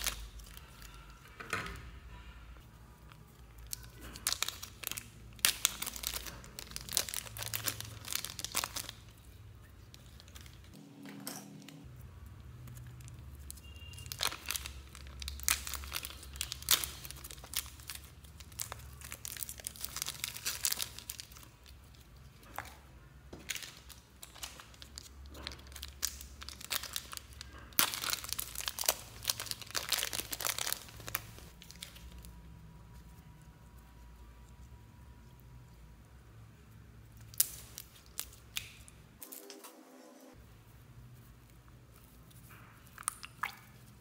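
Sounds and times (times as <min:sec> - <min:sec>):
slime and plastic bag crinkling: 0:00.0 - 0:01.2, 0:03.0 - 0:10.8, 0:12.6 - 0:33.2, 0:37.2 - 0:39.6.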